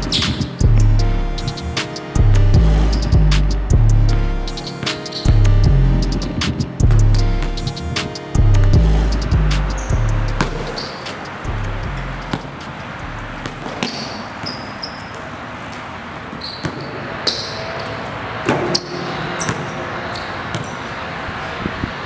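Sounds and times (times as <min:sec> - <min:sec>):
basketball bouncing on concrete: 0:08.5 - 0:11.1, 0:12.3 - 0:12.7, 0:13.4 - 0:15.2.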